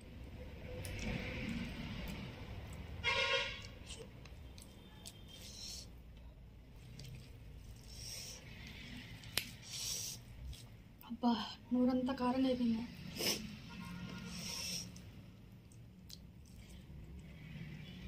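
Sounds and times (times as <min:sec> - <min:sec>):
person chewing food: 0:06.7 - 0:10.8, 0:14.2 - 0:17.3
hissing in-breaths through teeth: 0:07.8 - 0:08.9, 0:09.6 - 0:10.3, 0:14.3 - 0:15.0.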